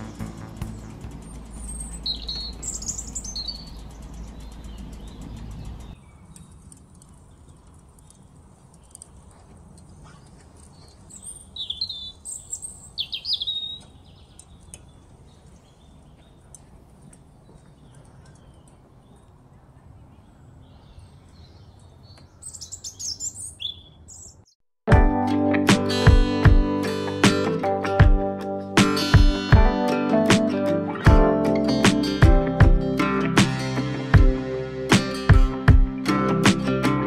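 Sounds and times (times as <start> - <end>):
low steady rumble: 0.0 - 9.0
small birds chirping: 0.0 - 24.6
wood fire crackling: 2.5 - 9.9.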